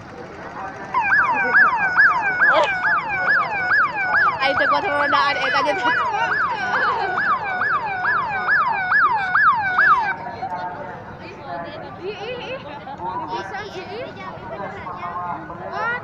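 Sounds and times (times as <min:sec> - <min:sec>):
electronic siren yelping: 0:00.9 - 0:10.2.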